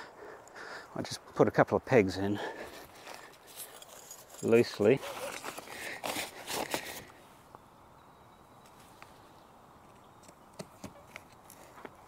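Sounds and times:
tent fabric rustling and scraping: 2.8 - 7.1.

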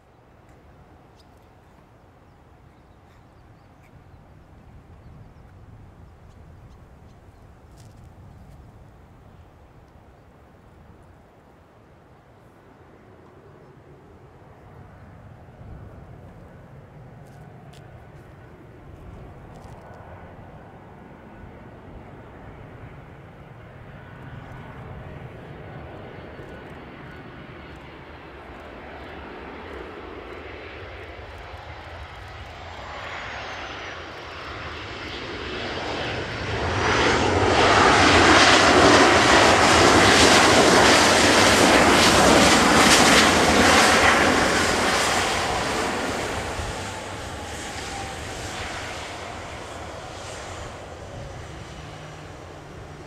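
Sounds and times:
jet airliner landing roar: 12.1 - 53.0
high jet whine: 30.4 - 53.0.

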